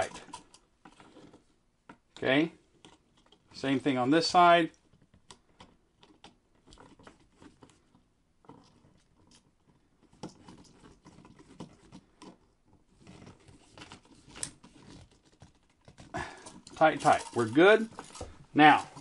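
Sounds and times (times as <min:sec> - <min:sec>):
screwdriver clicks and scrapes: 0:00.0 - 0:01.4.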